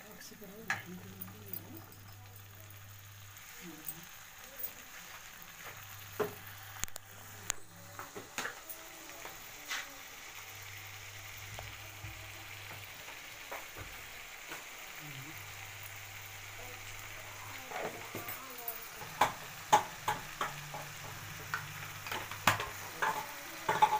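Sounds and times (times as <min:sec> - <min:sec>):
spices sizzling in hot oil: 0:00.0 - 0:23.9
spoon clinking against pan: 0:22.1 - 0:23.9.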